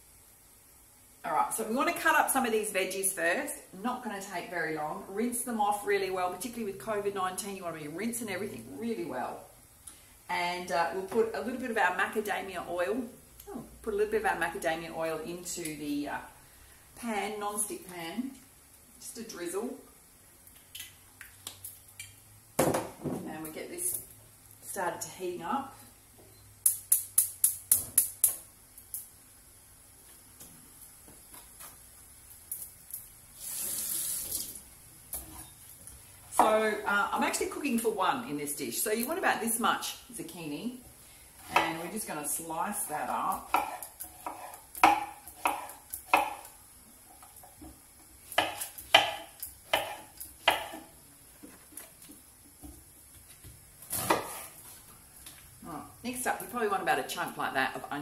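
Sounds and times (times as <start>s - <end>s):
knife cutting on wooden board: 43.5s - 46.4s, 48.4s - 50.8s.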